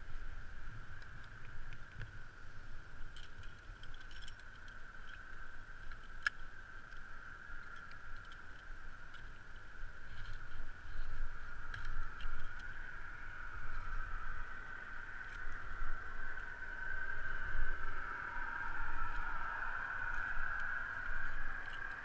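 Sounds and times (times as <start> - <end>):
faint steady high tone: 0.0 - 22.0
wind rumble on microphone: 0.0 - 22.0
metal climbing gear clinking: 3.0 - 16.0, 20.0 - 22.0.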